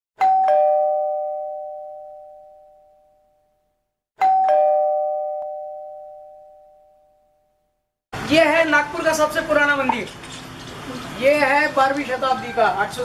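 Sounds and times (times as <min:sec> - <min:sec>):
two-note doorbell chime: 0:00.2 - 0:03.4, 0:04.2 - 0:07.5.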